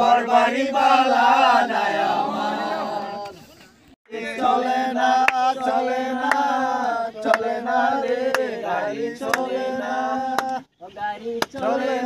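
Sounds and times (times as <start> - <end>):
men singing: 0.0 - 3.4, 4.1 - 12.0
sharp hand claps: 5.2 - 5.5, 6.2 - 6.5, 7.3 - 8.5, 9.2 - 9.5, 10.3 - 10.6, 11.4 - 11.7.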